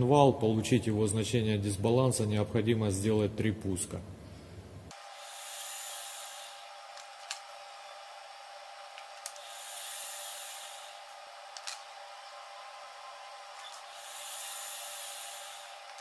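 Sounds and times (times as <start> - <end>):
faint steady hum: 0.0 - 16.0
balancing machine whirring: 4.9 - 16.0.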